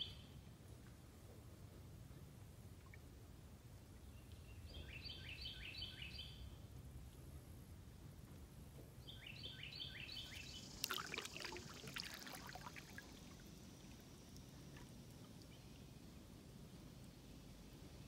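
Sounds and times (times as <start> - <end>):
faint low rumble: 0.0 - 18.0
bird singing: 4.1 - 6.5, 9.0 - 11.3
water dripping off paddle: 10.6 - 15.6.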